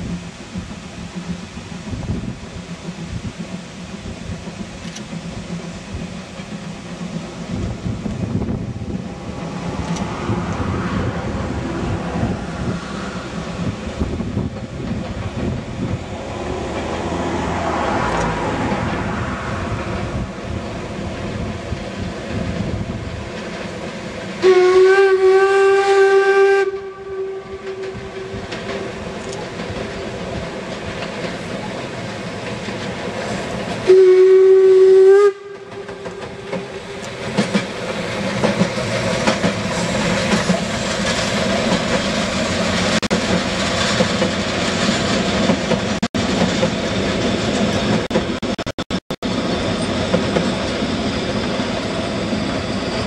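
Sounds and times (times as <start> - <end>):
train wheels rattling: 0.0 - 48.6
steam whistle blasts: 24.4 - 28.6, 33.8 - 36.5.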